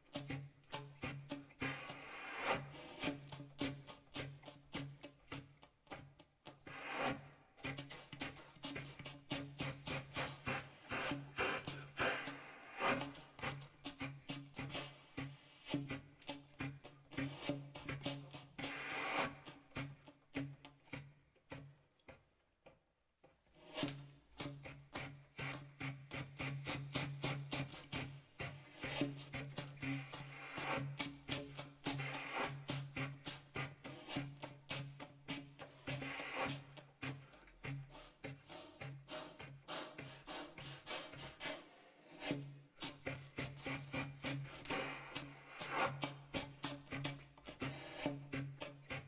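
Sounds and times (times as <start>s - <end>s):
short scraping strokes on instrument: 6.7s - 13.8s, 23.6s - 49.0s.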